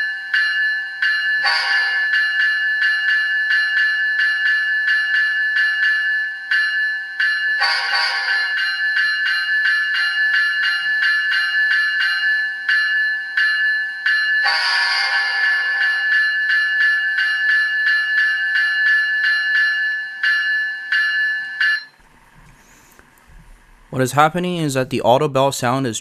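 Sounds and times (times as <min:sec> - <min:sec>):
model locomotive bell ringing: 0:00.0 - 0:22.0
locomotive horn blast: 0:07.6 - 0:08.5, 0:14.5 - 0:15.4.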